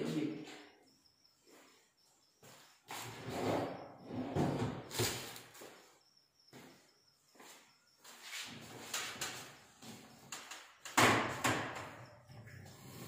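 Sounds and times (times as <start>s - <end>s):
cabinet doors knocking and clicking: 10.8s - 12.0s.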